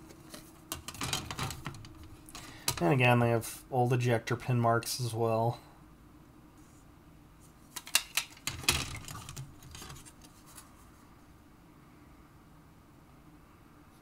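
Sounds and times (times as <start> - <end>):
plastic pieces clattering: 0.7 - 2.8, 7.8 - 10.2
plastic scraping on mat: 8.4 - 10.7.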